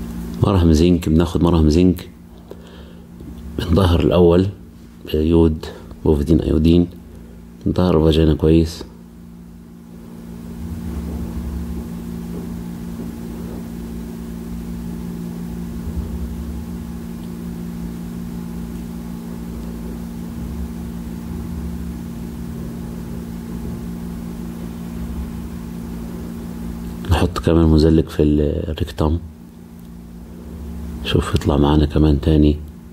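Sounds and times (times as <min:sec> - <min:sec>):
low mechanical hum: 0:00.0 - 0:32.9
deep rumble: 0:09.9 - 0:18.4.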